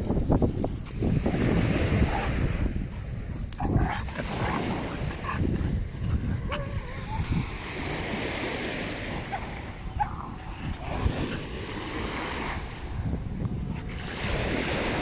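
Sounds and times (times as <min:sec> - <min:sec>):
wind rumbling on microphone: 0:00.0 - 0:15.0
small waves breaking on shore: 0:06.8 - 0:13.1, 0:13.8 - 0:15.0.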